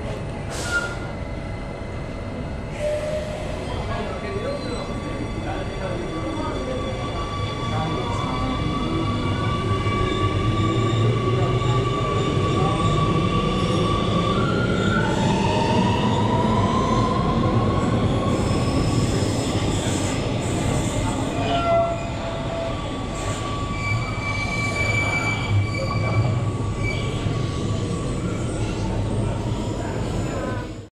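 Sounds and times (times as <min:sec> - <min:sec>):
train wheels rumbling on rails: 0:00.0 - 0:30.9.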